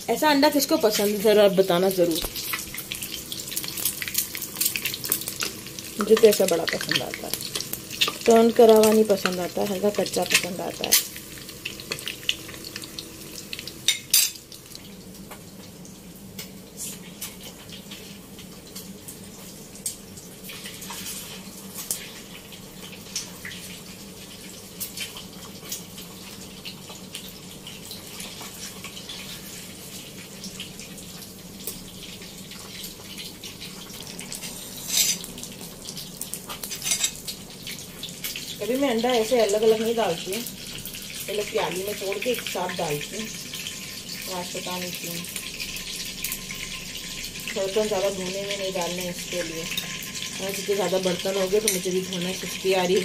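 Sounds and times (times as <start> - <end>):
eggs sizzling in hot oil: 0.0 - 53.0.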